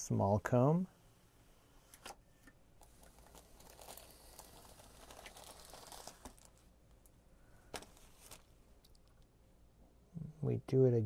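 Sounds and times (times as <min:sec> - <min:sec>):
comb rustling through paint: 0:02.8 - 0:09.2.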